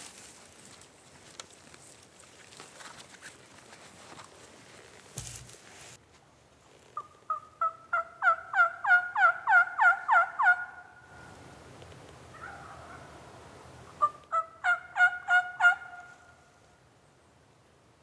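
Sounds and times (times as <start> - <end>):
turkey yelping: 7.0 - 10.9, 12.3 - 13.1, 14.0 - 16.1.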